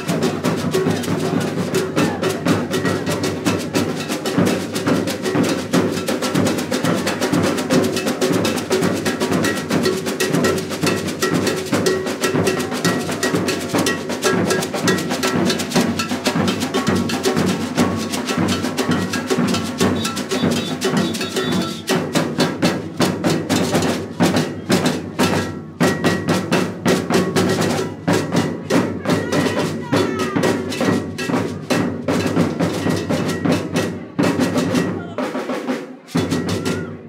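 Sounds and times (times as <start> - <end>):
drums playing fast rhythm: 0.0 - 37.0
beaded gourd shaker: 18.0 - 21.9.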